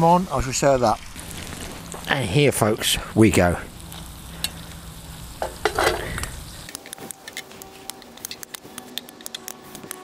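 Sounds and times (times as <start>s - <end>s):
light sizzle from pan: 0.0s - 9.8s
metal tongs clicking and scraping: 5.4s - 9.9s.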